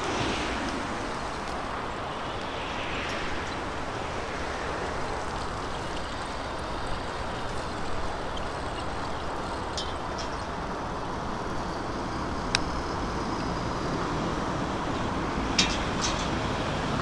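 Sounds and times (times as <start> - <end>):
wind rushing: 0.0 - 7.0.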